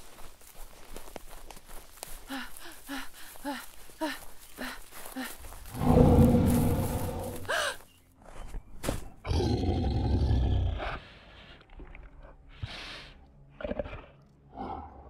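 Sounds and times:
deep monster roars: 5.7 - 7.5.

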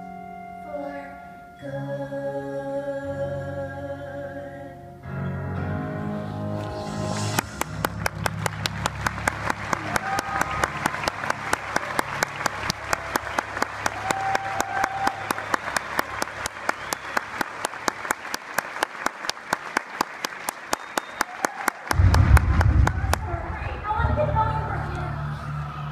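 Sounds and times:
audience applauding: 7.2 - 23.6
hands clapping close by: 7.4 - 22.5.

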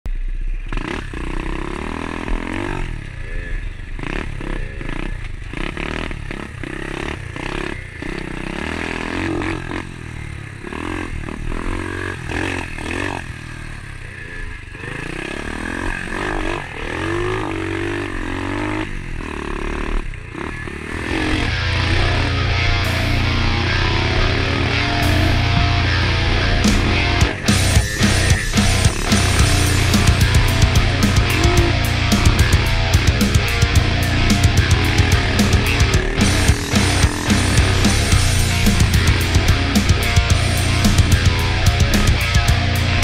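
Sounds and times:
small dirt bike engine running: 0.1 - 43.0
pit bike engine revving: 0.6 - 43.0
rock music: 21.0 - 43.0.

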